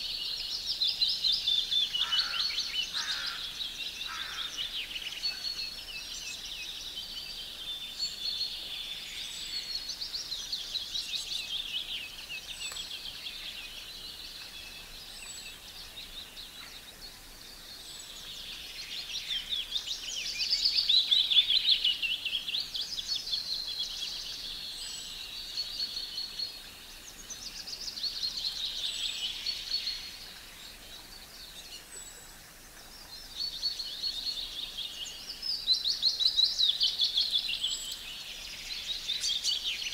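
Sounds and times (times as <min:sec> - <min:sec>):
songbirds trilling and whistling: 0:00.0 - 0:39.9.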